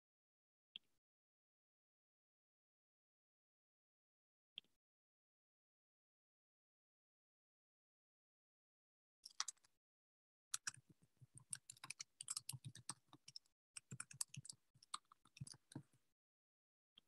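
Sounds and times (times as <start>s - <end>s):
typing on a computer keyboard: 9.3s - 9.7s, 10.6s - 10.8s, 11.4s - 15.9s.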